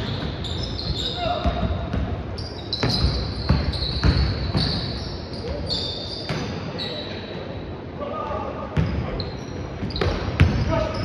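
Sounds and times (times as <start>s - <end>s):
basketball bouncing on court: 0.0s - 5.7s, 9.8s - 10.7s
sneakers squeaking on floor: 0.0s - 7.4s, 8.7s - 11.0s.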